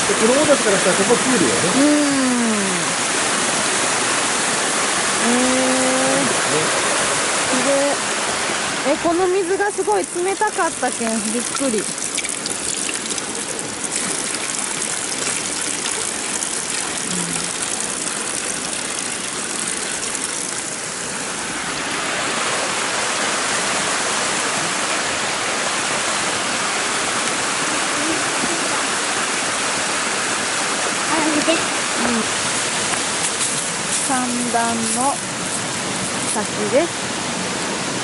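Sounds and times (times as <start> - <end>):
stream flowing over rocks: 0.0 - 38.0
water pouring from a pipe: 9.6 - 21.0.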